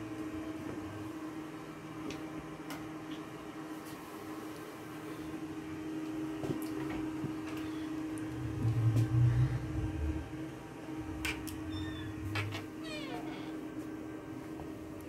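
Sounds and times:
machine hum: 0.0s - 15.0s
loud low sound: 8.2s - 12.5s.

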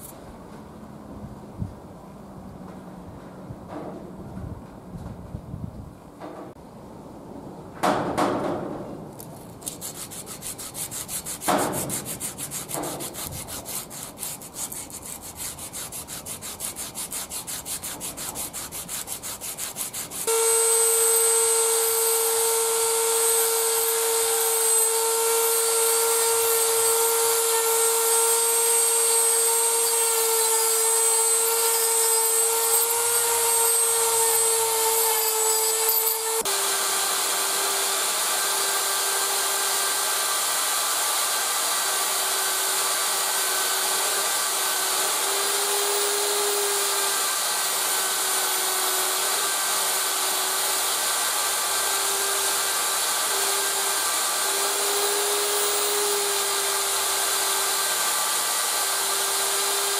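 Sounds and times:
abrasive cloth rasping on steel: 9.6s - 40.3s
rotary tool high whine: 9.6s - 59.9s
polishing wheel whine: 19.1s - 40.2s.

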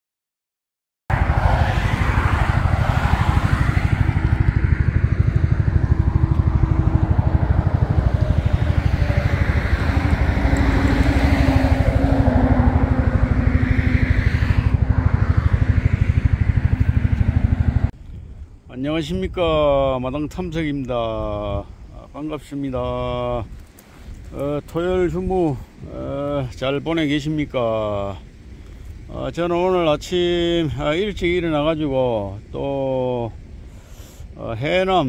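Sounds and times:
engine running with rapid pulsing: 1.1s - 17.9s.

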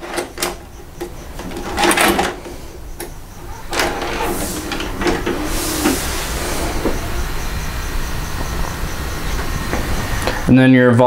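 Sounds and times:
mechanical clicks and clunks: 0.0s - 7.8s
short motor whirs: 3.3s - 8.2s.

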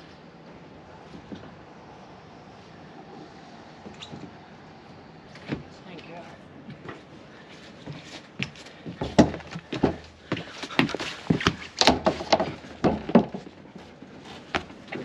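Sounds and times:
knocks and thumps on deck: 10.8s - 13.5s.

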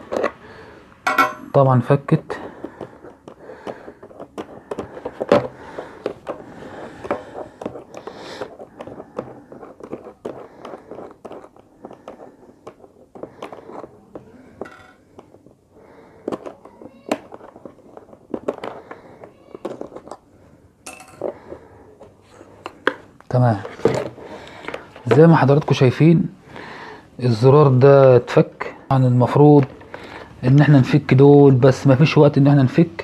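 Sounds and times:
plastic helmet handled: 0.0s - 1.5s, 2.1s - 20.4s, 21.0s - 26.7s, 29.2s - 30.8s.

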